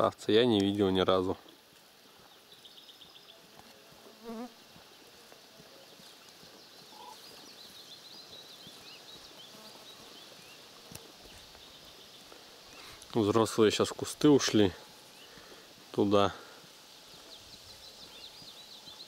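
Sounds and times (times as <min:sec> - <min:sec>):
crane chicks peeping: 0:06.8 - 0:10.4.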